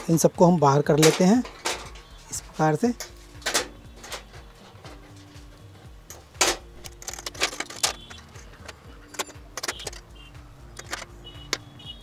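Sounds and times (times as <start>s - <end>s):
plastic strips clicking and clattering: 1.0s - 2.1s, 3.4s - 5.1s, 6.4s - 10.1s.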